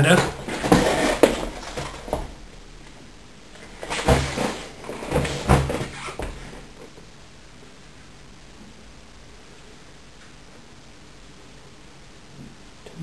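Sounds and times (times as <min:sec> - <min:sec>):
objects knocking and clattering: 0:00.0 - 0:07.0.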